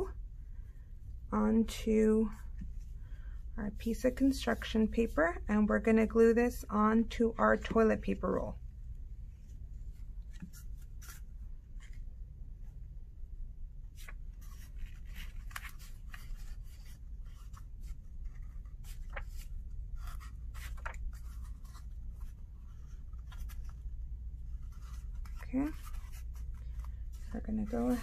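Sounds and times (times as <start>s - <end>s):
low steady hum: 0.0s - 28.0s
paper rustling and scraping: 9.8s - 12.1s, 13.9s - 28.0s.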